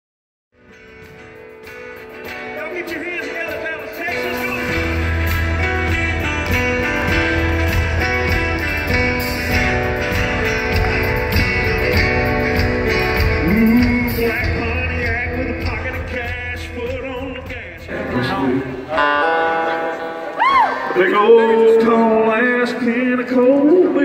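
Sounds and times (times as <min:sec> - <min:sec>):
acoustic guitar: 0:00.6 - 0:24.0
man singing into microphone: 0:02.6 - 0:06.4, 0:13.4 - 0:19.2, 0:20.9 - 0:24.0
heavy bass: 0:04.5 - 0:19.0.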